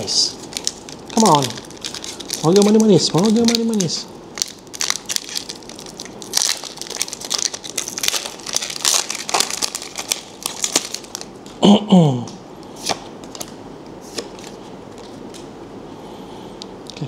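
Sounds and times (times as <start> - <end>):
cards being handled: 0.4 - 4.0, 12.8 - 15.4
foil wrapper crinkling and tearing: 0.4 - 11.3.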